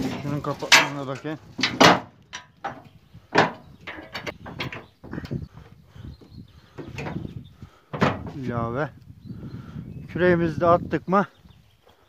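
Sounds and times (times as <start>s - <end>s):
metal tailgate clanking: 0.0s - 4.9s.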